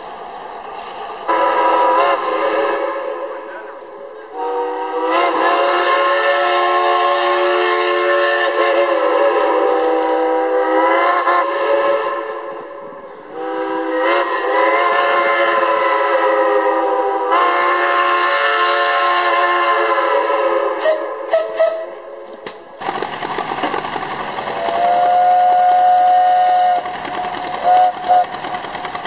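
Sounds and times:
steam whistle chord: 0:04.3 - 0:22.1, 0:24.7 - 0:26.9.

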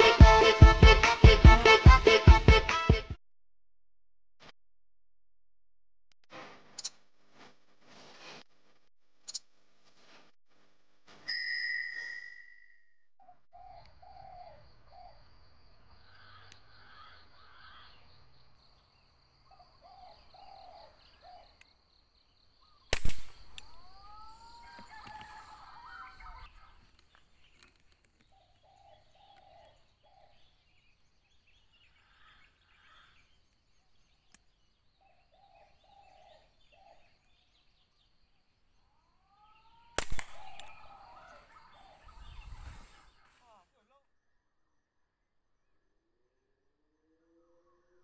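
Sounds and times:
bird calls: 0:13.2 - 0:43.6
air rifle shots: 0:22.9 - 0:23.7, 0:40.0 - 0:40.9.

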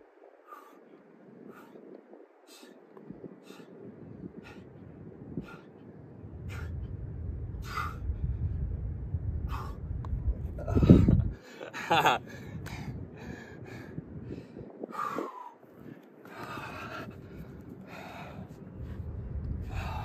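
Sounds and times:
man breathing hard: 0:00.3 - 0:08.7, 0:09.4 - 0:20.0
low rumble: 0:03.2 - 0:14.6, 0:16.5 - 0:20.0.

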